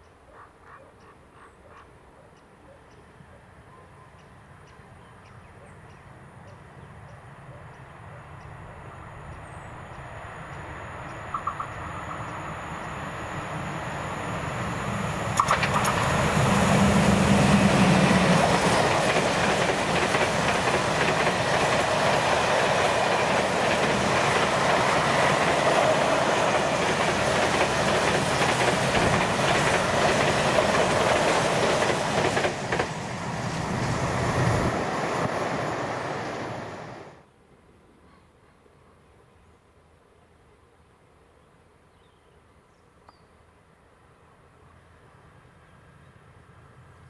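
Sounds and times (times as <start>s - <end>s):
rail joint clicks: 9.3s - 13.6s, 15.1s - 35.9s
train wheels rumbling on rails: 9.3s - 37.2s.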